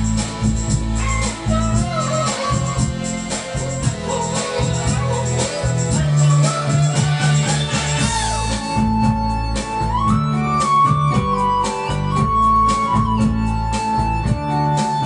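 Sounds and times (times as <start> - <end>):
background music with beat: 0.0 - 15.0.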